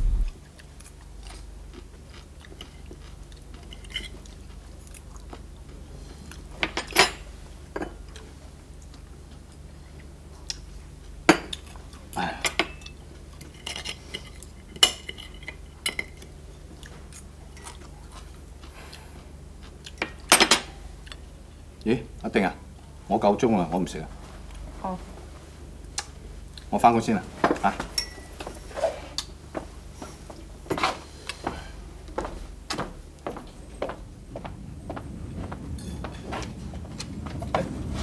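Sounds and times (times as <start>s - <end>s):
faint low hum: 0.0s - 0.6s
cutlery clinking on china plates: 27.9s - 28.4s.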